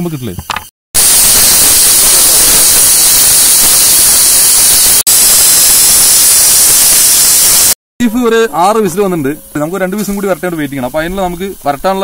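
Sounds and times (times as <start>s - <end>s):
pressure cooker steam hiss: 1.0s - 7.8s.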